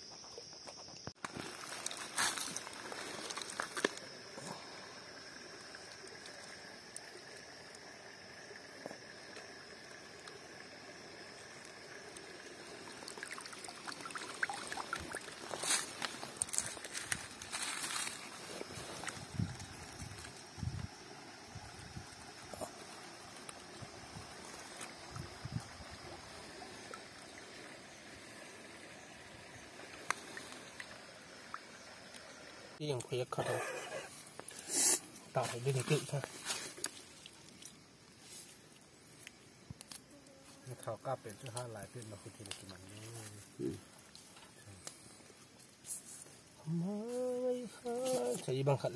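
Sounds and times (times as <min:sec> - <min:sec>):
flowing stream water: 0:01.3 - 0:39.2
hand splashing pool water: 0:13.0 - 0:16.4.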